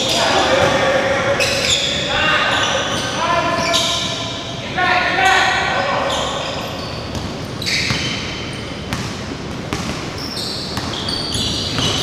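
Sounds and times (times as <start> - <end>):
sneakers squeaking on court: 1.4 - 4.6, 6.0 - 12.0
basketball bouncing on wooden floor: 8.9 - 12.0.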